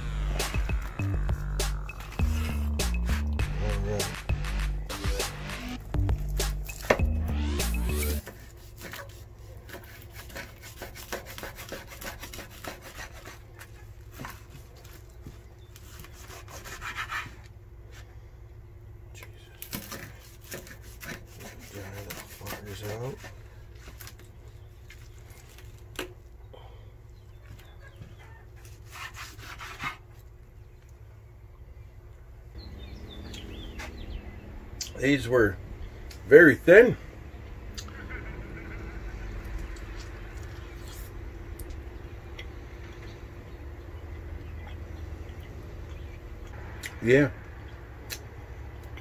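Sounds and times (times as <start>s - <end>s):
burst of music: 0.0s - 8.2s
steady low hum: 0.0s - 11.0s, 30.1s - 49.0s
knife sawing through ribs: 0.3s - 3.3s, 7.6s - 14.5s, 15.8s - 17.4s, 19.8s - 24.0s, 28.6s - 30.2s.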